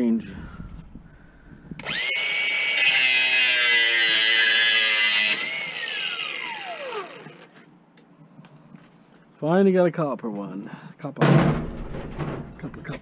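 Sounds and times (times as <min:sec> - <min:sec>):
power tool whining and hissing: 0:01.8 - 0:07.6.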